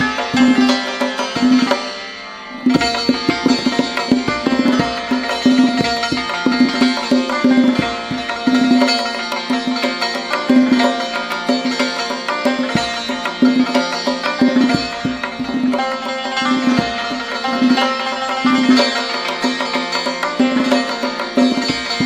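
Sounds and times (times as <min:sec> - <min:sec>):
hand drum strokes: 0:00.0 - 0:01.9, 0:02.6 - 0:22.0
hammered dulcimer notes: 0:00.0 - 0:22.0.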